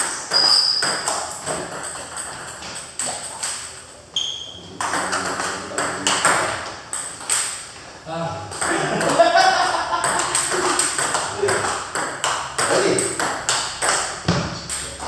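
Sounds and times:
table tennis balls clicking: 0.0 - 7.8, 8.5 - 15.0
high squeaks: 0.3 - 1.0, 4.2 - 5.3.

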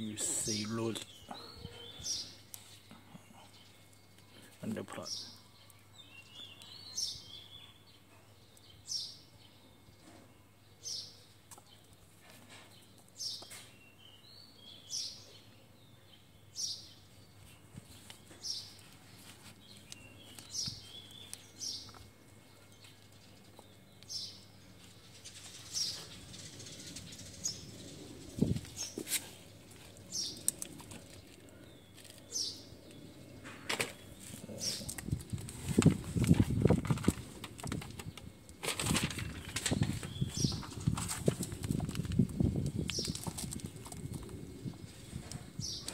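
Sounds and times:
soft rustling: 17.4 - 22.1.

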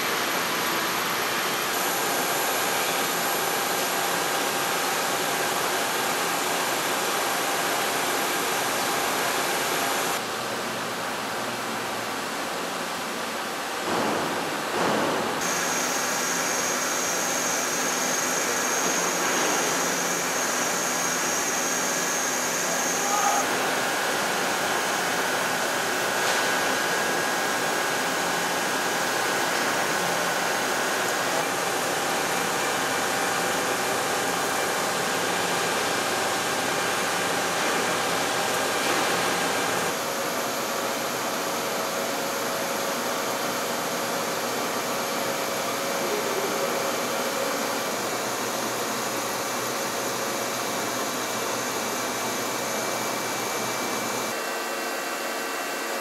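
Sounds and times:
lathe whirring and hissing: 15.4 - 56.0.

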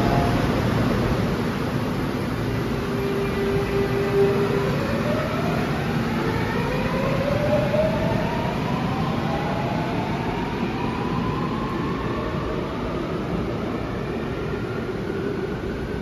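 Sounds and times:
train running rumble: 0.0 - 6.3.

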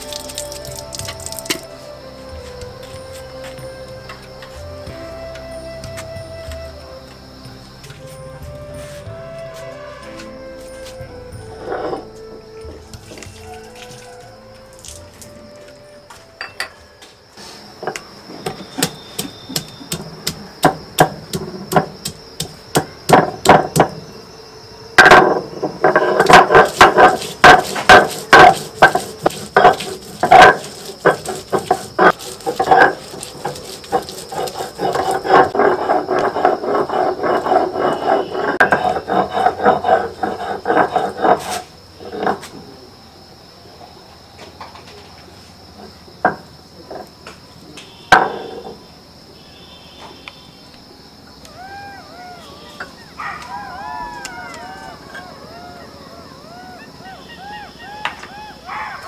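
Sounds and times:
knife chopping on wooden board: 18.5 - 23.9, 26.0 - 32.2.

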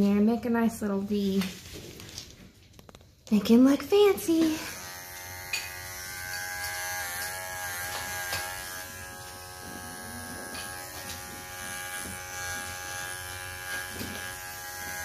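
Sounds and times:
electric clippers buzzing: 4.1 - 15.0.

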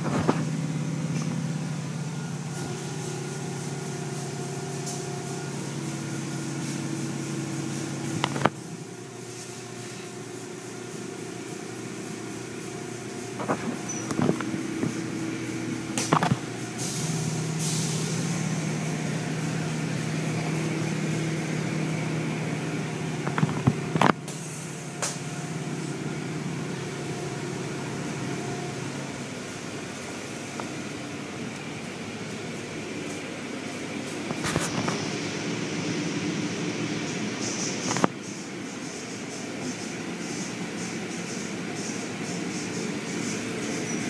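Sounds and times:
low motor hum: 0.0 - 44.0.

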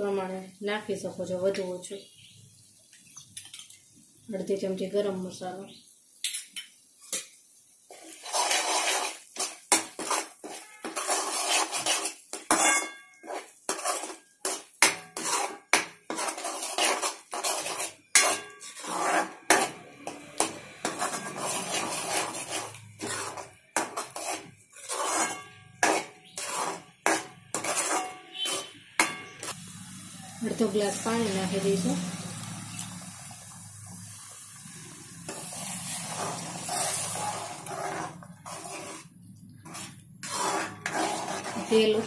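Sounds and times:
metal spoon scraping metal pot: 7.9 - 29.6, 35.3 - 42.0.

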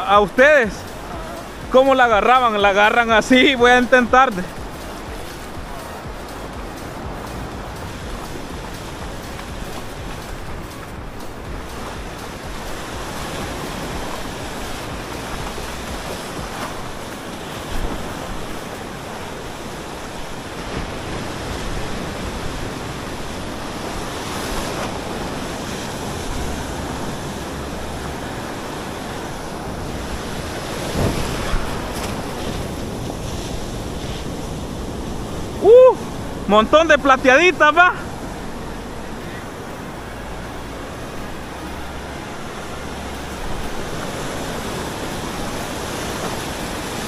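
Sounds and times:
wind buffeting microphone: 0.0 - 37.1
surf washing onto beach: 0.0 - 47.0.

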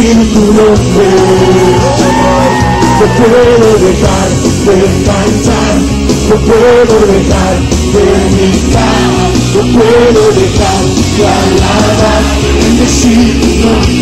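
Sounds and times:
worship band playing: 0.0 - 14.0.

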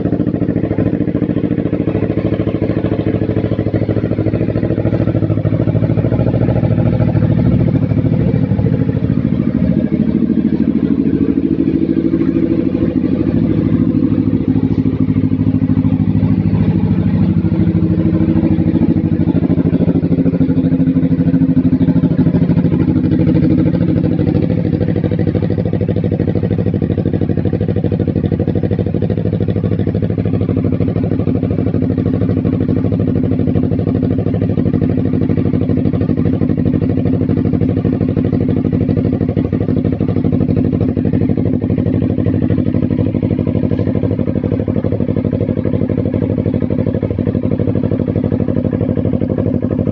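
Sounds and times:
motorcycle engine idling: 0.0 - 49.9.

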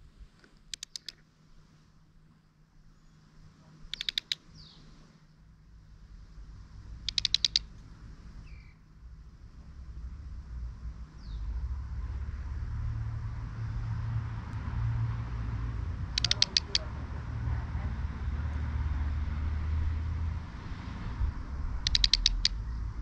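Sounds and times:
bird chick rattling clicks: 0.7 - 1.2, 3.9 - 4.4, 7.0 - 7.9, 16.1 - 16.9, 21.8 - 22.6.

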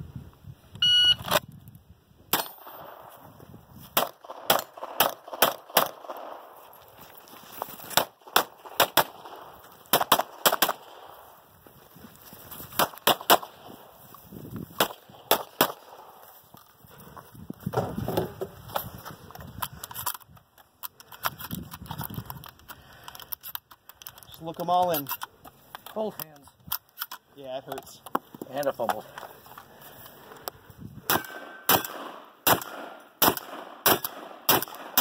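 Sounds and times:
pistol shots: 4.0 - 6.5, 8.0 - 11.2, 12.8 - 13.7, 14.8 - 16.2, 31.1 - 35.0.

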